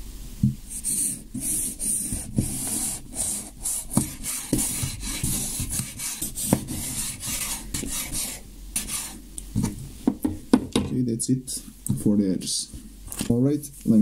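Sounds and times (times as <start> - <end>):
knife rasping through paper tube: 0.8 - 9.2.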